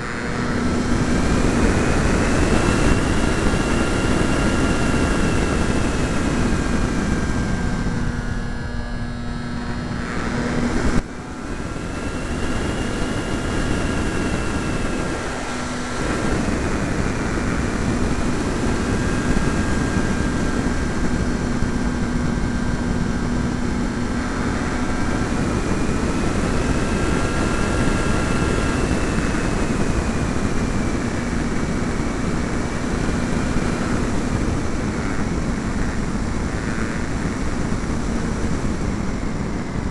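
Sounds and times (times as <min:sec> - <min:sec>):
electric motor and propeller whine: 0:00.0 - 0:39.9.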